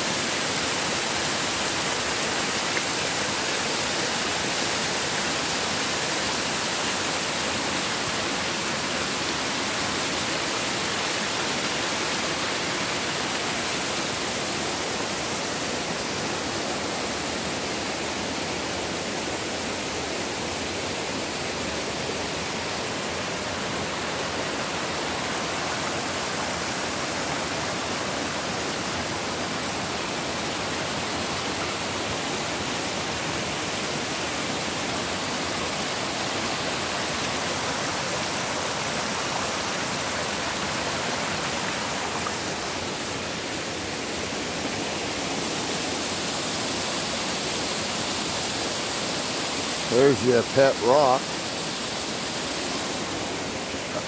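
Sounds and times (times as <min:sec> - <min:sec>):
creek water tumbling over rocks: 0:22.3 - 0:48.5.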